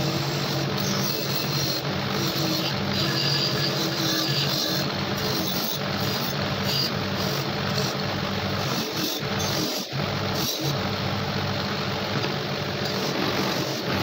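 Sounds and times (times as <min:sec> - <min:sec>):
bench grinder motor hum: 0:00.0 - 0:14.0
metal grinding on wheel: 0:00.0 - 0:14.0.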